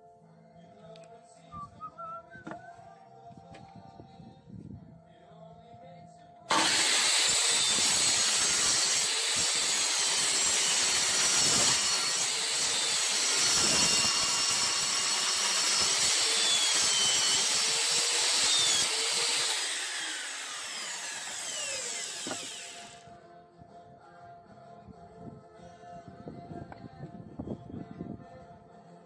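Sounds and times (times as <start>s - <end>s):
miter saw cutting wood: 6.5s - 23.0s
saw blade spinning down: 6.5s - 23.0s.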